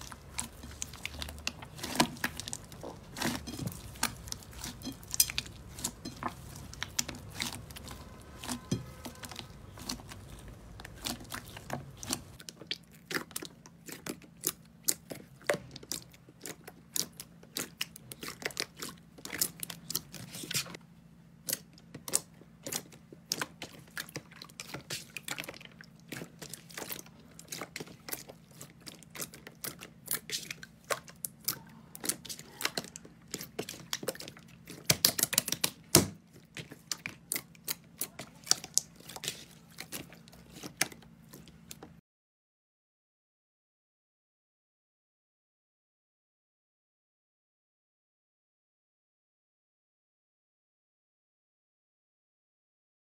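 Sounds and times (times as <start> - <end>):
hands squishing slime: 0.0 - 20.8, 21.4 - 42.0.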